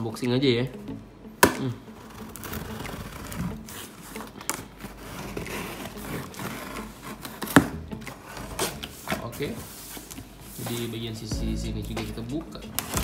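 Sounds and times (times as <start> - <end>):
knife scraping through tape and cardboard: 2.0 - 10.9.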